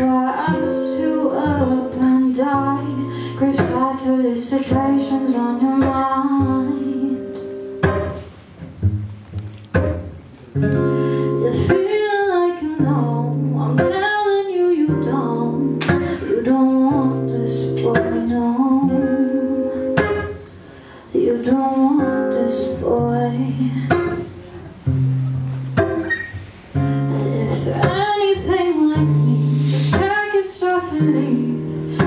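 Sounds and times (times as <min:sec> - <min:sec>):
woman singing: 0:00.0 - 0:07.5, 0:11.2 - 0:20.3, 0:21.1 - 0:24.4, 0:27.0 - 0:32.0
acoustic guitar: 0:00.0 - 0:32.0.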